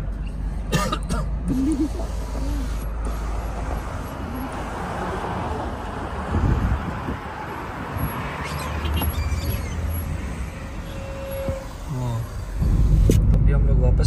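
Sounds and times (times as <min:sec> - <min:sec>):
car engine and road rumble: 0:00.0 - 0:14.0
rushing road and air noise: 0:00.0 - 0:14.0.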